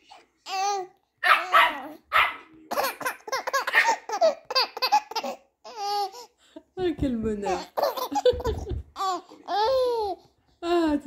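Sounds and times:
dog barking and yapping: 1.2s - 2.5s, 3.7s - 4.0s
baby laughing: 2.6s - 6.3s, 7.4s - 10.3s.

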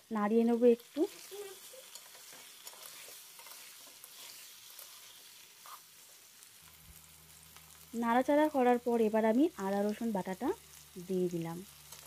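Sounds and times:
oil sizzling: 0.0s - 12.0s
spatula scraping pan: 1.1s - 6.2s.

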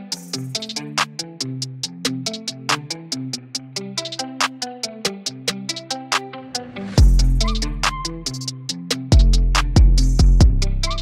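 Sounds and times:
upbeat background music: 0.0s - 11.0s.

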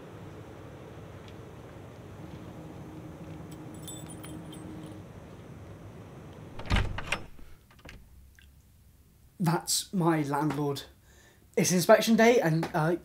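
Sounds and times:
keys jingling: 3.3s - 5.2s
door thudding: 6.5s - 8.1s.

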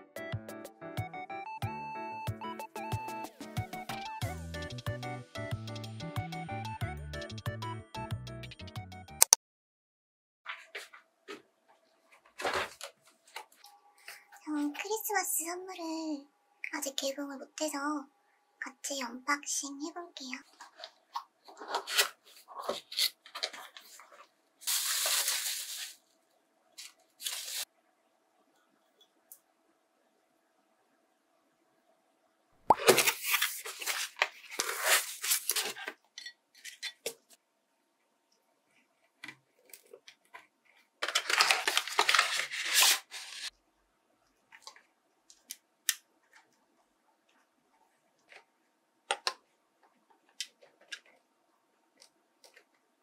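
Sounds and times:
wrapping paper crinkling: 20.5s - 26.2s, 26.8s - 27.7s, 32.8s - 36.0s, 39.6s - 43.5s
cardboard box opening: 21.5s - 24.1s, 32.8s - 36.0s, 41.0s - 43.5s.

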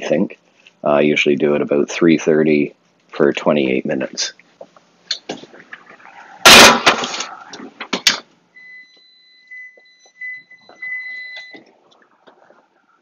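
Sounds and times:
high electronic beep: 8.6s - 11.6s.

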